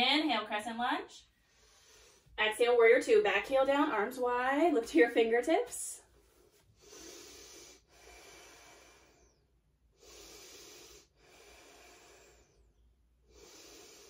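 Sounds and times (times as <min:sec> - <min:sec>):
woman breathing slowly: 0:01.3 - 0:02.4, 0:06.2 - 0:14.0.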